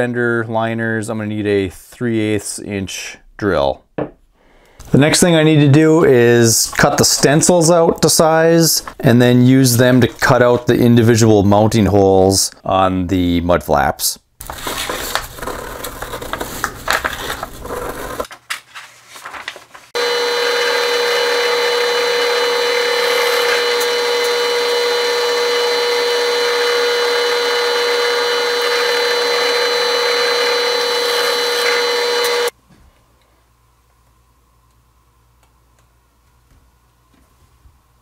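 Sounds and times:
drill press motor whine: 20.0s - 32.5s.

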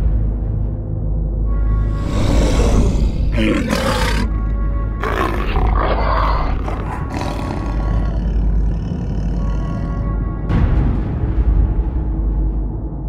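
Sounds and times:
low droning music: 0.0s - 13.0s
large animal growling: 2.0s - 10.5s.

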